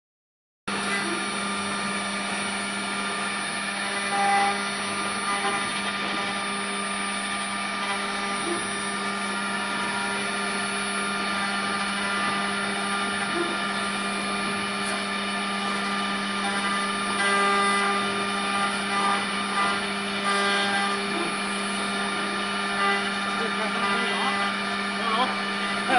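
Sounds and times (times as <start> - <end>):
wood router whining: 0.7 - 25.9.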